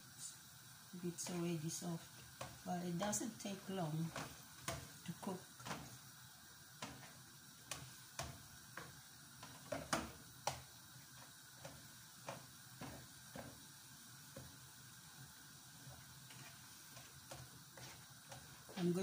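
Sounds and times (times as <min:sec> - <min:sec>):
spatula scraping a pan: 0:15.9 - 0:18.9.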